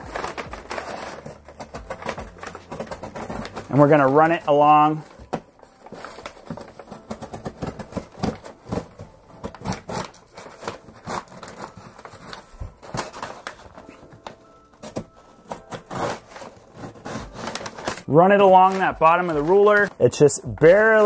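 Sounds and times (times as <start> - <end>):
packing paper crinkling: 0.0 - 21.0
box cutter scraping cardboard: 14.8 - 19.9.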